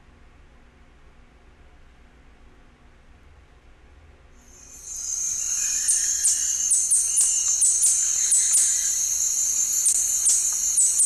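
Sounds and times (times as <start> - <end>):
high insect drone: 4.4 - 11.0
hummingbird calling: 4.6 - 11.0.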